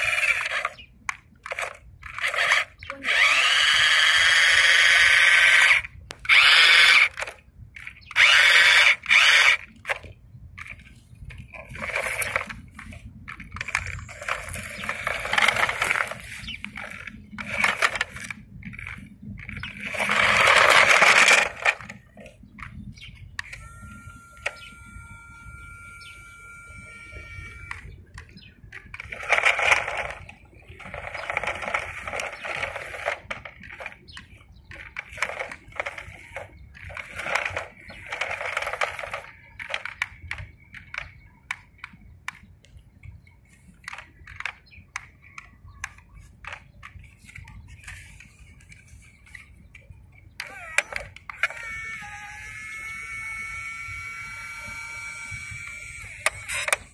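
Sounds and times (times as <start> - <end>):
electric motor whining: 0.0 - 0.8, 1.4 - 10.0, 11.7 - 22.0, 23.4 - 34.0, 50.4 - 56.9
lift motor whining: 0.0 - 0.8, 1.4 - 10.0, 11.6 - 22.0, 23.4 - 40.1, 50.4 - 56.9
scattered clicks: 0.0 - 56.9.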